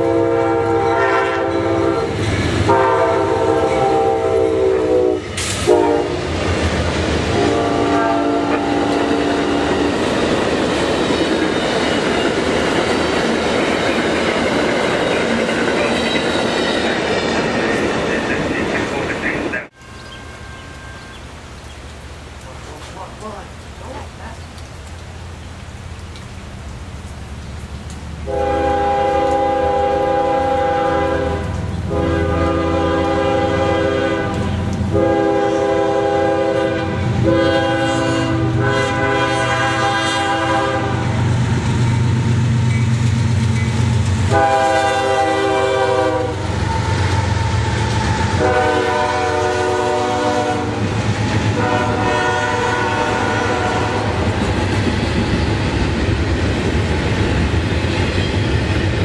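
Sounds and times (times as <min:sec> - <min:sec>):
locomotive air horn blasts: 0:00.0 - 0:06.3, 0:07.3 - 0:09.9, 0:28.3 - 0:41.1, 0:44.3 - 0:47.5, 0:48.3 - 0:50.8, 0:51.6 - 0:54.2
rail cars rattling past: 0:00.0 - 0:21.8, 0:28.2 - 0:59.0.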